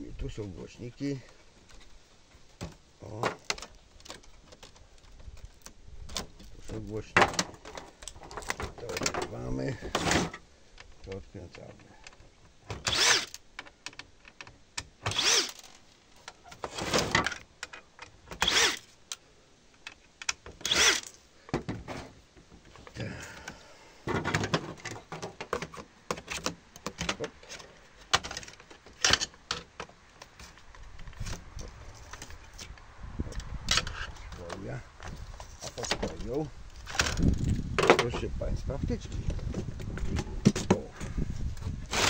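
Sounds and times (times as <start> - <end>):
cordless drill running: 12.9 - 13.4, 15.1 - 15.6, 18.4 - 18.8, 20.6 - 21.1.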